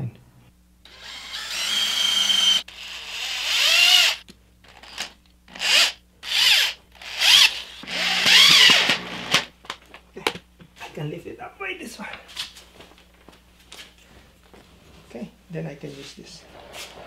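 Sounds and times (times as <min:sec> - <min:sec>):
power drill driving screws into wood: 0:00.9 - 0:09.5.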